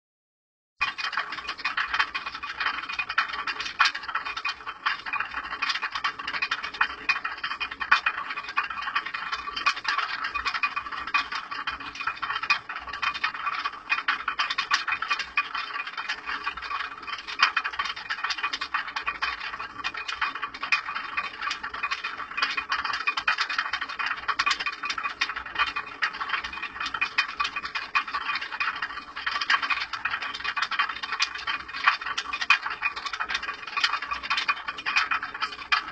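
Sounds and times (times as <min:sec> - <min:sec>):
wooden feeder rattling on millstone: 0:00.8 - 0:35.9.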